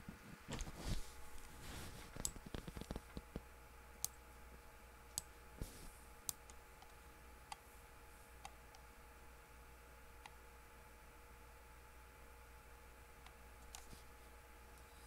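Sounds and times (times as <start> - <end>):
faint steady hum: 0.0 - 15.0
computer mouse clicking: 2.2 - 3.4, 12.6 - 14.0.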